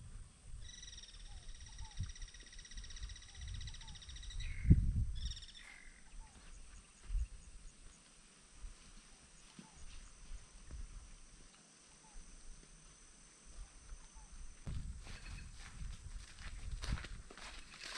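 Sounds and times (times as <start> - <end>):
wind rumble on microphone: 0.0 - 6.4, 14.2 - 17.8
bird singing buzzy trill: 0.6 - 7.8
faint bird chirps: 0.6 - 7.9.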